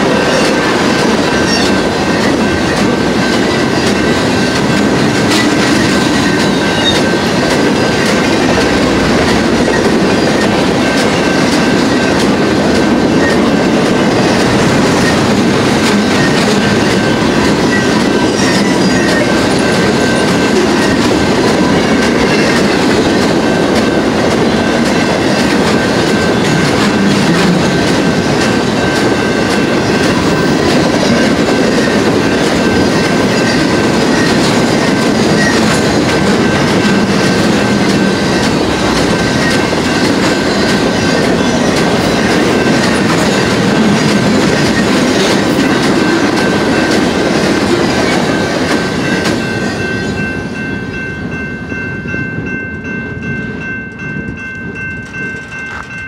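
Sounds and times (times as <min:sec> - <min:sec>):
crossing bell ringing: 0:00.0 - 0:56.0
freight train rumbling past: 0:00.0 - 0:56.0.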